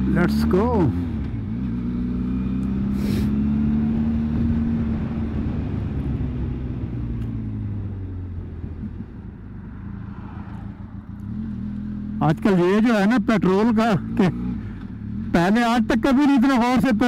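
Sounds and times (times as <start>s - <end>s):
motorcycle engine pulling away: 0.0s - 12.8s.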